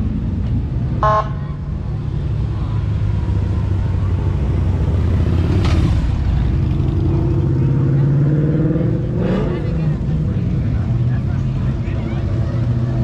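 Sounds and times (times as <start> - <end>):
car engine rumbling past: 0.0 - 13.0
car horn toot: 1.0 - 1.4.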